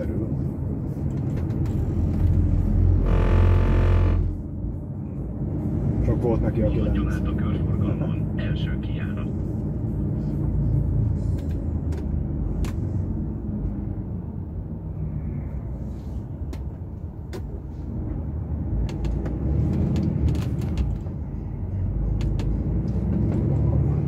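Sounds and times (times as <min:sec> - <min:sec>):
truck diesel engine: 0:00.0 - 0:24.0
sharp clicks and knocks: 0:18.8 - 0:21.2, 0:22.1 - 0:23.4.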